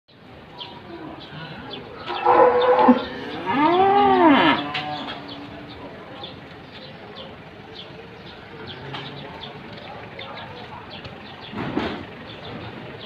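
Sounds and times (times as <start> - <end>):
cattle mooing: 2.0 - 5.7.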